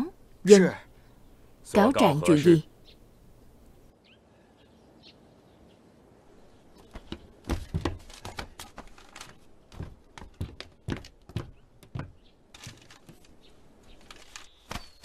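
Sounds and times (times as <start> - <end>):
dull thuds: 7.0 - 8.6
irregular knocks and clicks: 7.0 - 13.3.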